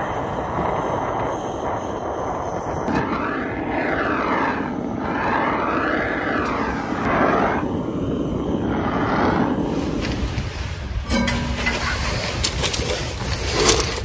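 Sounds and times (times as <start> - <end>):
roar of flame: 2.8 - 11.0.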